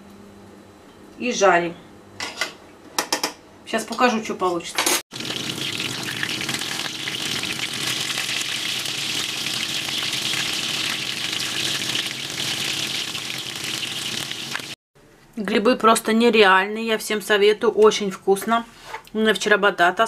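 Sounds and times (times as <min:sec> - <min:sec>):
food sizzling in hot oil: 0:05.1 - 0:14.8.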